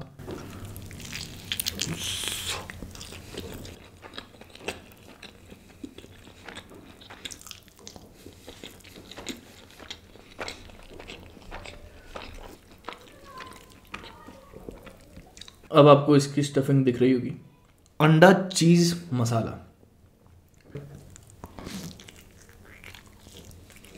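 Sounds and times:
crunching bite of flatbread: 0:00.3 - 0:15.6
chewing with mouth clicks: 0:00.3 - 0:15.7, 0:20.5 - 0:23.9.

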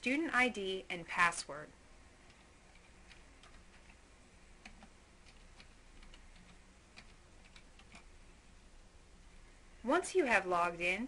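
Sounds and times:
keyboard keystrokes: 0:04.6 - 0:08.1.

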